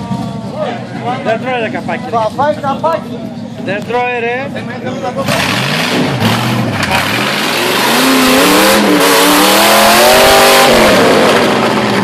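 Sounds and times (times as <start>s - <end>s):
off-road engine revving hard: 5.2s - 12.0s.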